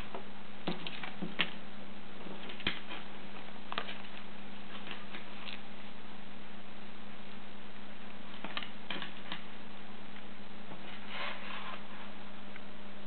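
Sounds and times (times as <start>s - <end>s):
low electrical hum: 0.0s - 13.0s
soft rustle: 10.1s - 12.3s.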